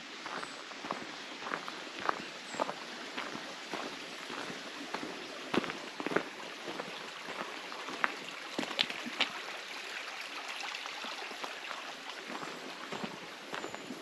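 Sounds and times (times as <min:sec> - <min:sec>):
brook trickling over stones: 0:00.0 - 0:14.0
footsteps on gravel: 0:00.2 - 0:09.4, 0:12.3 - 0:14.0.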